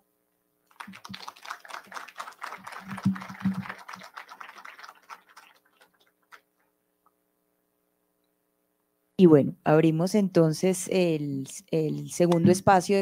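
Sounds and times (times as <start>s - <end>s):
small audience applauding: 0.7s - 6.6s.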